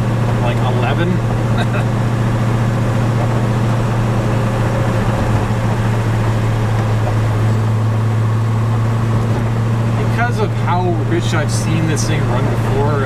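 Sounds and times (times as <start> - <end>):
car engine cruising with low drone: 0.0 - 13.0.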